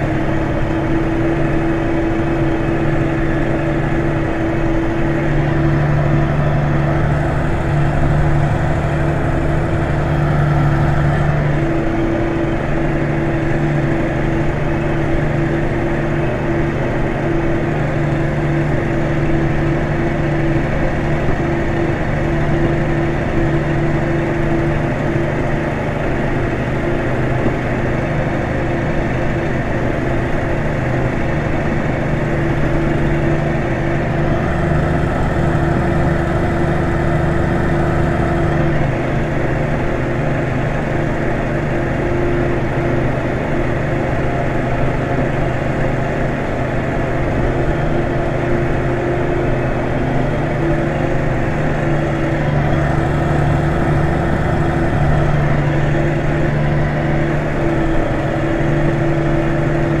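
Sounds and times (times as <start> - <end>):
tractor diesel engine under load: 0.0 - 60.0.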